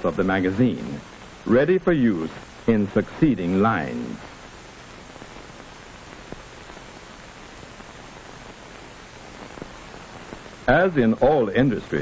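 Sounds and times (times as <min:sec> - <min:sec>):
narration voice: 0:00.0 - 0:04.2, 0:10.7 - 0:12.0
film soundtrack hiss and static: 0:00.0 - 0:12.0.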